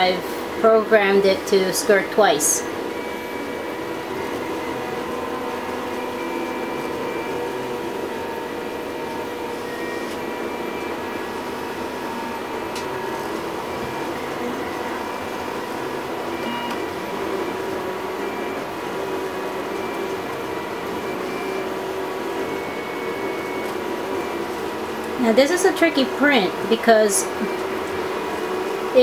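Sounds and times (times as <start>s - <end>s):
constant hum: 0.0s - 29.0s
stepper motors whining: 0.0s - 29.0s.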